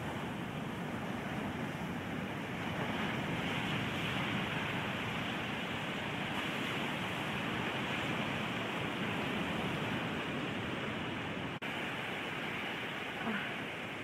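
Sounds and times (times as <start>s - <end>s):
ocean surf breaking: 0.0s - 14.0s.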